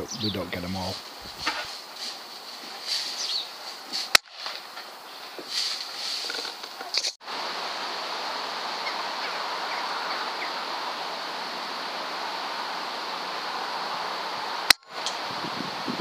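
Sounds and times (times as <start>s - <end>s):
outdoor background rush: 0.0s - 16.0s
faint bird chirps: 3.1s - 3.6s.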